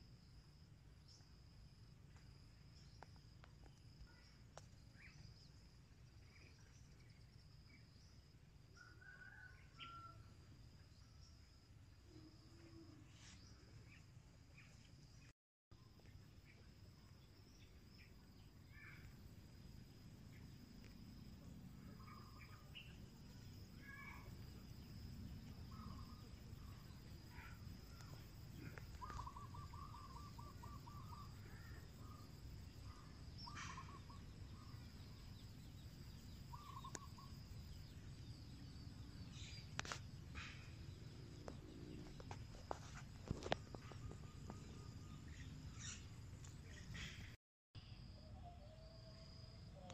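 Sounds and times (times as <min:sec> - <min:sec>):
insect drone: 0:00.0 - 0:49.9
bird chirps: 0:21.8 - 0:49.2.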